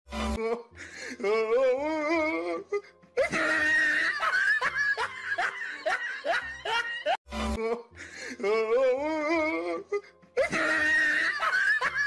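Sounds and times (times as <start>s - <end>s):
music: 0.1s - 12.0s
high-pitched laughter: 10.4s - 12.0s.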